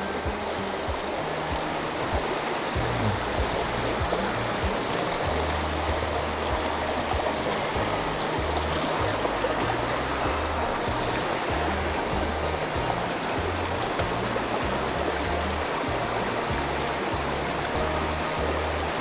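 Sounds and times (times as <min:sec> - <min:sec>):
background music with bass: 0:00.0 - 0:19.0
stream water rushing: 0:00.0 - 0:19.0.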